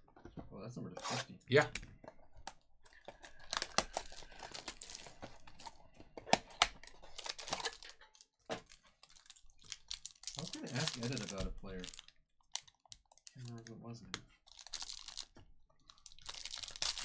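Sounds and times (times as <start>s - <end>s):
wrapper crinkling: 3.1s - 5.8s, 6.8s - 13.6s, 14.5s - 17.0s.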